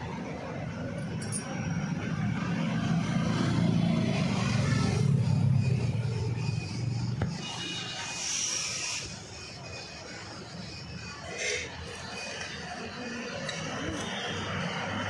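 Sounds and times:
vehicle passing by: 0:02.4 - 0:06.5.

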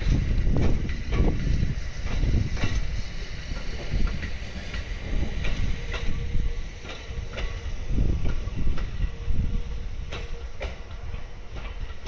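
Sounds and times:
electric train rumbling: 0:00.0 - 0:12.0
wheels knocking over rail joints: 0:00.0 - 0:12.0.

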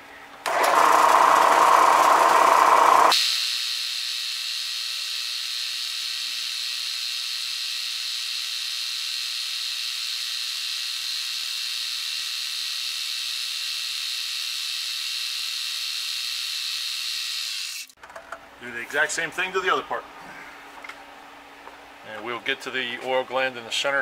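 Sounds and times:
milling machine high-pitched hiss: 0:02.6 - 0:17.4.

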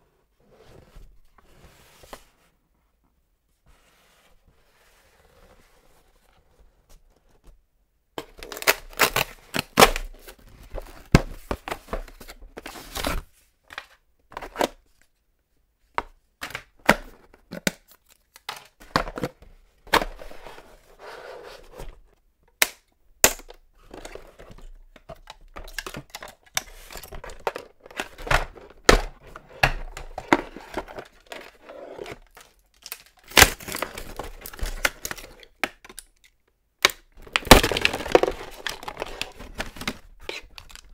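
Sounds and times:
cardboard and plastic tearing: 0:08.4 - 0:10.3, 0:29.6 - 0:35.4, 0:37.2 - 0:40.9
plastic bag crinkling: 0:37.2 - 0:39.4.

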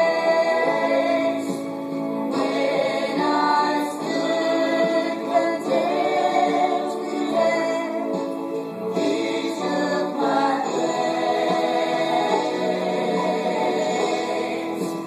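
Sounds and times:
women singing gospel: 0:00.0 - 0:01.7, 0:02.3 - 0:08.3, 0:08.9 - 0:15.0.

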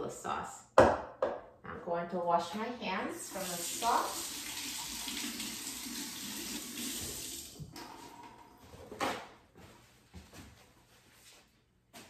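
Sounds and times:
faucet running over hands: 0:03.2 - 0:07.7.

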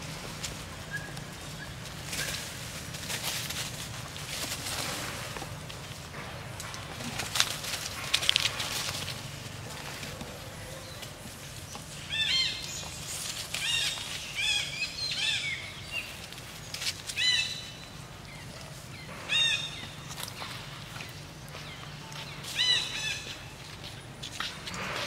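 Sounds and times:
macaques squeaking: 0:00.8 - 0:02.5.

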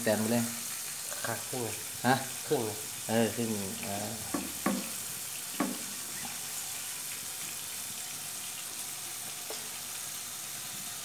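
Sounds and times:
steady hiss: 0:00.0 - 0:11.0
knife chopping on wooden block: 0:04.3 - 0:04.9, 0:05.6 - 0:05.9.

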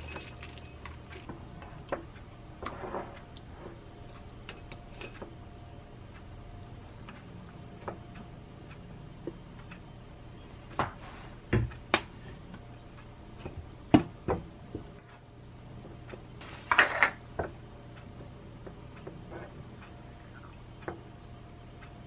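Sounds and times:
faint steady hum: 0:00.0 - 0:22.0
rustling scrape: 0:02.7 - 0:03.8.

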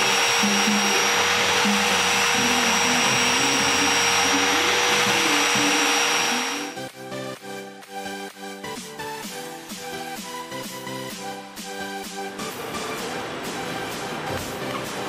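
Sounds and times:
angle grinder whining: 0:00.0 - 0:07.0
electrode grinding on disc: 0:00.0 - 0:07.0.

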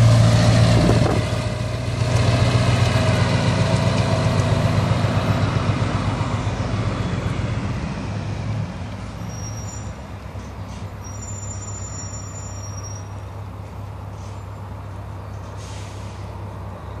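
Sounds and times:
diesel truck engine rumble: 0:00.0 - 0:17.0
short air hiss: 0:15.5 - 0:16.3.

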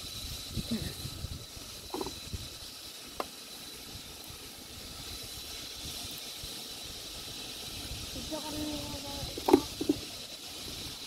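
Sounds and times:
steady high hiss: 0:00.0 - 0:11.0
thin steady whine: 0:00.0 - 0:11.0
wind rumble on microphone: 0:00.1 - 0:02.6.

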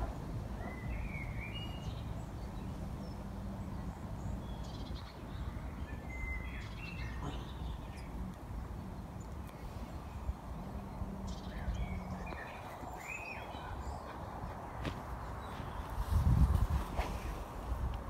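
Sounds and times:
wind rumble: 0:00.0 - 0:18.0
bird chirps: 0:00.6 - 0:08.3
cloth flapping in wind: 0:14.7 - 0:18.0.

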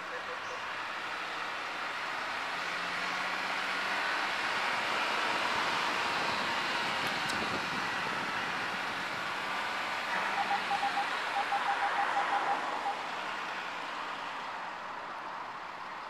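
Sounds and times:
parking sensor beeps: 0:10.2 - 0:13.0.

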